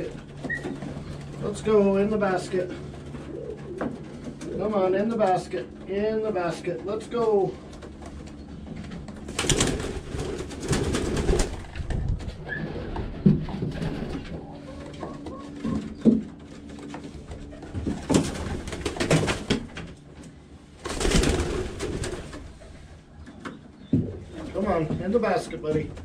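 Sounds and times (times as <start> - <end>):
wings flapping: 0.0 - 5.8, 7.5 - 24.9
pigeons cooing: 0.0 - 20.1.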